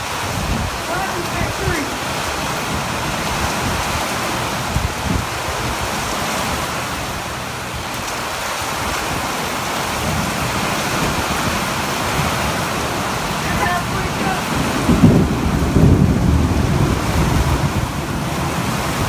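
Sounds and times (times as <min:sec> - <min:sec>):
heavy rain on pavement: 0:00.0 - 0:19.0.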